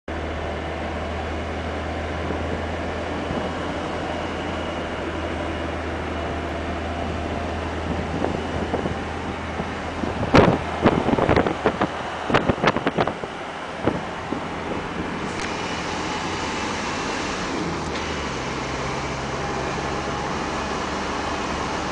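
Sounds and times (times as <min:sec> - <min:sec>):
vehicle engine drone: 0:00.1 - 0:21.9
wind gusts: 0:00.1 - 0:21.9.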